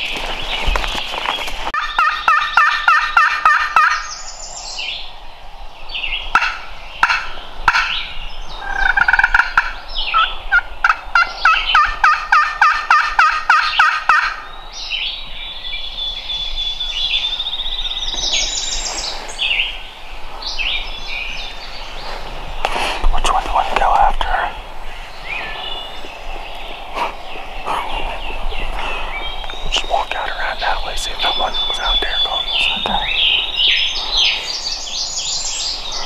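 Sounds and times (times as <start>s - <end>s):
songbirds singing: 0.0s - 36.0s
wild turkey calling: 1.8s - 4.3s, 6.3s - 14.6s, 22.8s - 36.0s.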